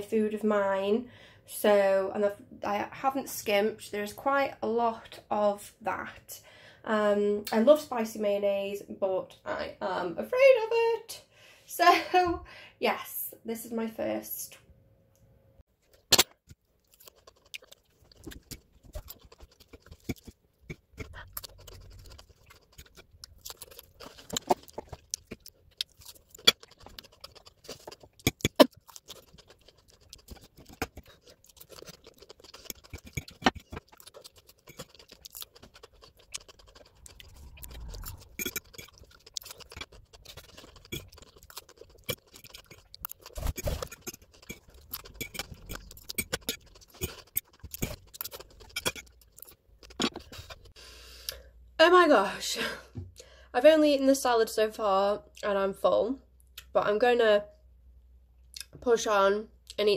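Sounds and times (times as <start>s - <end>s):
chewing: 15.8s - 51.4s
fork scraping a plate: 30.2s - 50.7s.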